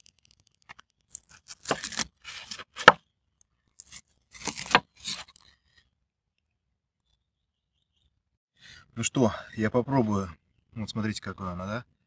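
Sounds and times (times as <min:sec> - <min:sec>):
knife cutting through meat: 0:01.3 - 0:03.0, 0:03.8 - 0:05.4.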